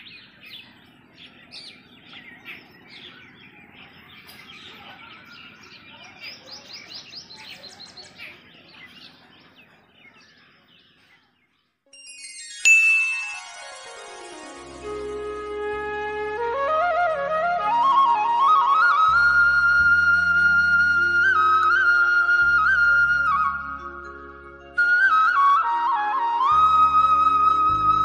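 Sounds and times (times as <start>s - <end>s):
small birds chirping: 0.0s - 11.8s
bright chime: 11.9s - 15.2s
music: 11.9s - 28.0s.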